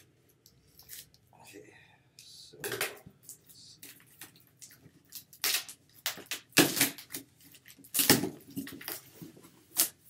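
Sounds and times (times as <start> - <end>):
packing tape ripping off cardboard: 5.1 - 9.1, 9.7 - 10.0.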